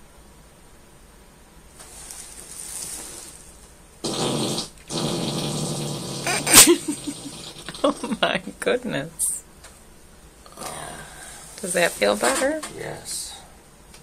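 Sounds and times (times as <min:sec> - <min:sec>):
loud rasping fart: 0:04.0 - 0:08.2.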